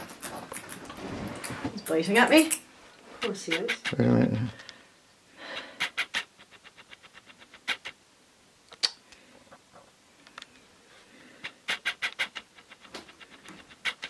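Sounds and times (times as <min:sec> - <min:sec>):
bat clicking chatters: 0:03.2 - 0:04.0, 0:05.8 - 0:08.0, 0:11.4 - 0:14.0.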